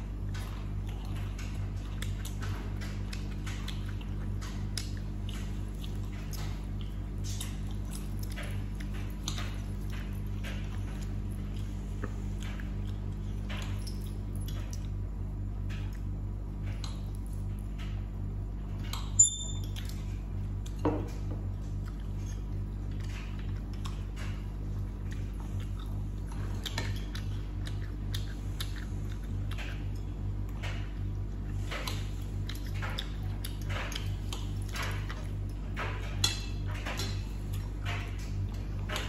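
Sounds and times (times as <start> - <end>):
steady low hum: 0.0 - 39.0
chewing: 0.1 - 15.0, 18.7 - 39.0
sharp ringing clink: 19.2 - 19.7.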